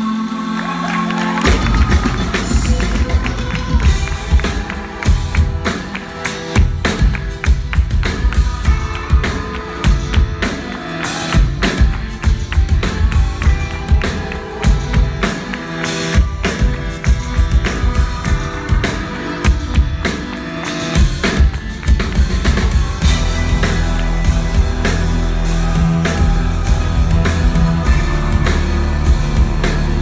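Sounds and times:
live rock band playing: 0.0 - 30.0
heavy low bass: 1.4 - 5.6, 22.0 - 30.0
drum strikes: 1.4 - 10.4.

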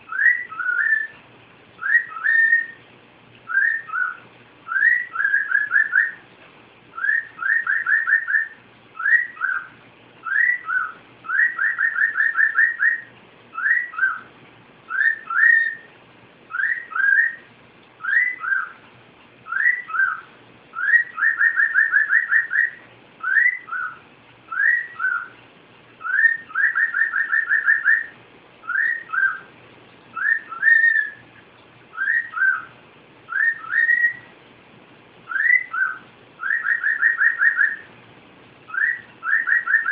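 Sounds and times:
cockatiel whistling a tune: 0.1 - 1.2, 1.8 - 2.8, 3.5 - 6.2, 6.9 - 14.3, 14.9 - 15.9, 16.5 - 18.8, 19.5 - 25.4, 26.0 - 29.5, 30.1 - 31.2, 31.9 - 32.7, 33.3 - 34.3, 35.3 - 37.9, 38.7 - 39.9.

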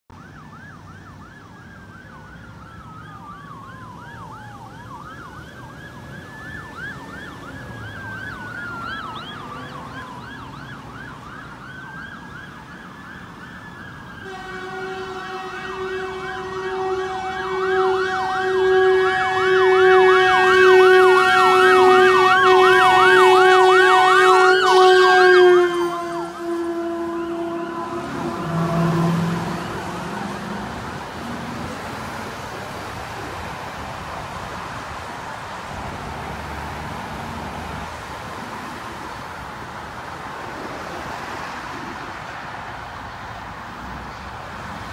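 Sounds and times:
ambulance siren wailing: 0.1 - 44.9
steady horn tone: 14.2 - 30.8.

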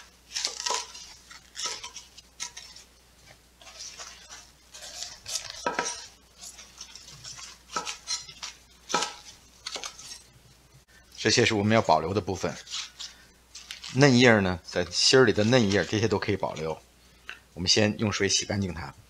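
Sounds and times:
greens stalks snapping: 0.3 - 2.6.

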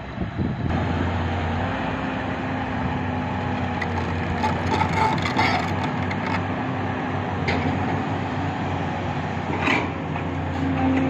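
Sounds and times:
excavator diesel engine running: 0.8 - 11.0
bucket scraping and crunching sand: 3.8 - 6.4.

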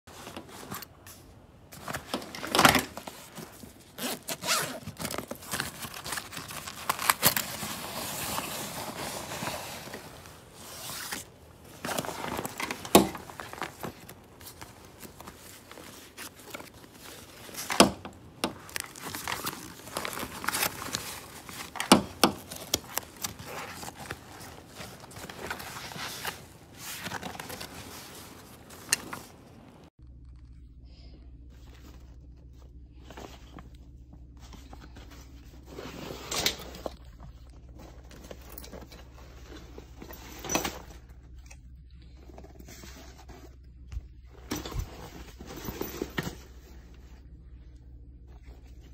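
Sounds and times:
nylon fabric rustling: 0.1 - 30.0
zippers pulled: 3.9 - 9.9.

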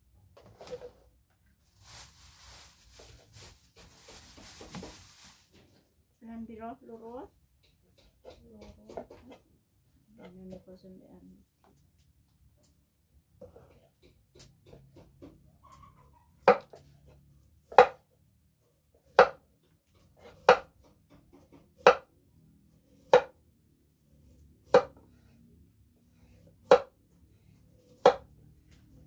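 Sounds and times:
knife chopping on wooden block: 16.4 - 16.8, 17.6 - 18.0, 19.0 - 19.4, 20.0 - 22.1, 22.9 - 23.4, 24.6 - 25.0, 26.4 - 26.9, 27.8 - 28.3.

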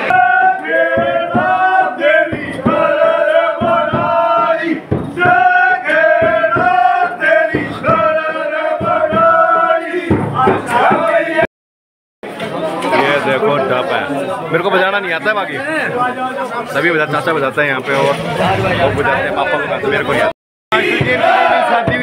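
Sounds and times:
men singing a chant-like song: 0.0 - 11.5, 20.0 - 22.0.

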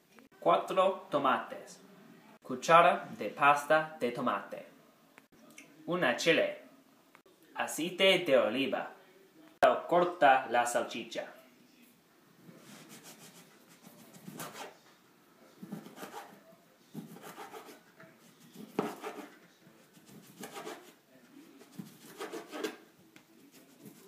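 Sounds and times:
knife sawing sausage: 12.7 - 14.8, 15.6 - 16.4, 17.0 - 21.0, 21.6 - 22.8, 23.4 - 24.0.

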